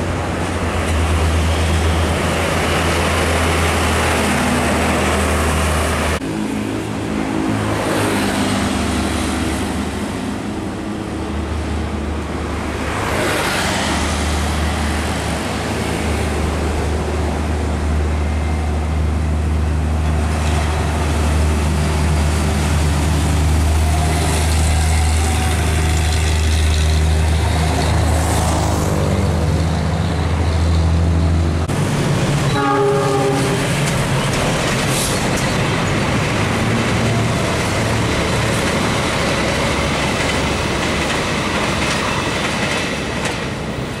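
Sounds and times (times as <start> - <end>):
train wheels on rails: 0.0 - 44.0
train horn: 32.5 - 33.8.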